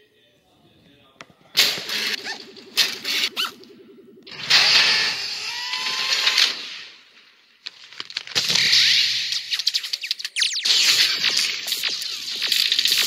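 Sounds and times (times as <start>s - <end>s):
small whistling glides: 1.8s - 6.5s
sharp zaps: 8.4s - 13.0s.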